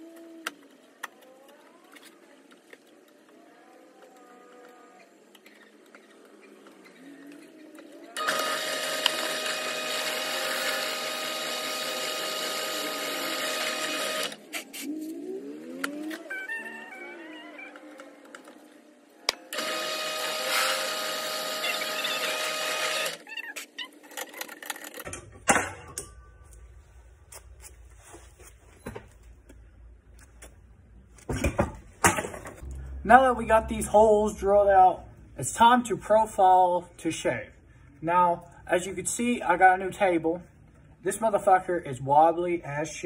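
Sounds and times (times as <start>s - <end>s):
drill press motor whine: 8.1s - 14.5s, 19.5s - 23.2s
drill cutting metal: 8.2s - 14.4s, 19.5s - 23.2s
low steady hum: 25.1s - 41.1s.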